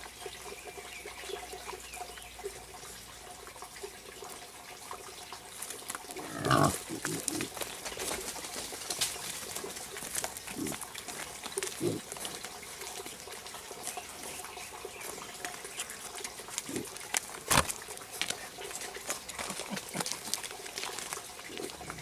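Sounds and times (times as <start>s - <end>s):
clicks and rustles on dirt: 5.2s - 22.0s
wild boar grunting: 6.1s - 7.6s, 10.4s - 12.4s, 16.6s - 17.0s, 21.4s - 22.0s.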